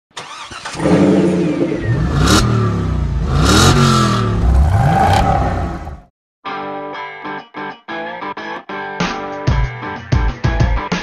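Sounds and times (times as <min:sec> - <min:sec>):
car engine revving: 0:00.2 - 0:06.1.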